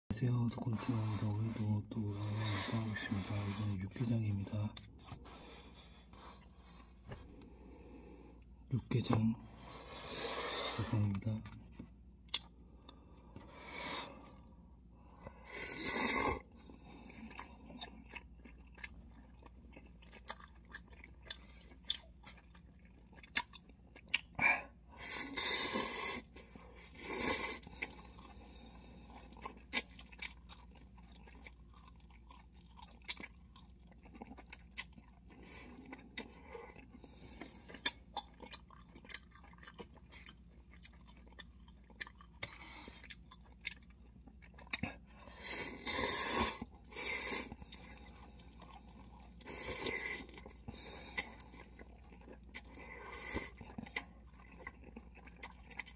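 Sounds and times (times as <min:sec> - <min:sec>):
soft chewing: 0:00.5 - 0:55.9
person slurping noodles: 0:45.4 - 0:47.9.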